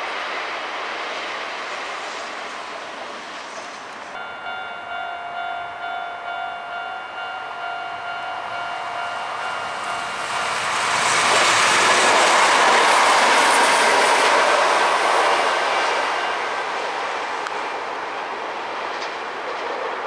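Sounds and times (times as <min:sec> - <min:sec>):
electric train passing: 0:00.0 - 0:20.0
level-crossing alarm ringing: 0:04.2 - 0:11.0.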